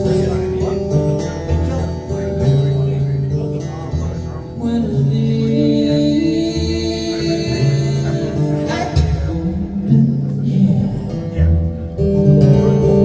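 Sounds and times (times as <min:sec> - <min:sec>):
guitar: 0:00.0 - 0:13.0
recorded music through loudspeakers: 0:00.0 - 0:13.0
person singing: 0:04.2 - 0:13.0.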